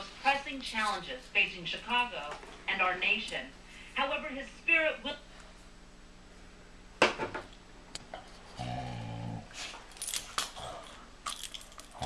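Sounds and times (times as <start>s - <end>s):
dog growling: 8.5s - 9.7s, 10.5s - 11.0s
collar tags jingling: 9.9s - 12.0s.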